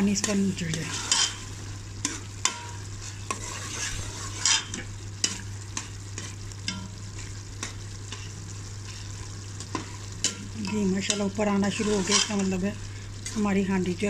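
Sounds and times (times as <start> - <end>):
curry sizzling: 0.0 - 14.0
metal ladle scraping pot: 0.8 - 1.4, 2.0 - 6.8, 9.7 - 12.6.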